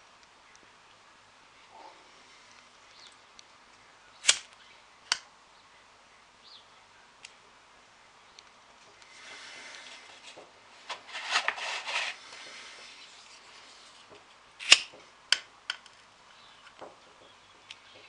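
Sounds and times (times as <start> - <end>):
lighter gas hiss: 9.0 - 10.4.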